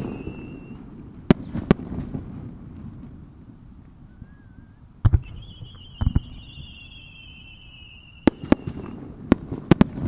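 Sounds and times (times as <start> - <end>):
firework whistle falling in pitch: 0.0 - 0.9, 4.0 - 9.1
firework bangs: 0.0 - 10.0.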